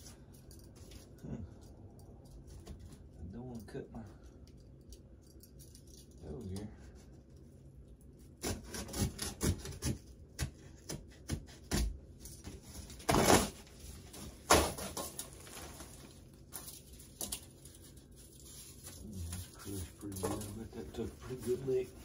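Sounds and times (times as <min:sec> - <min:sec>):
utility knife cutting cardboard: 0:08.4 - 0:10.0.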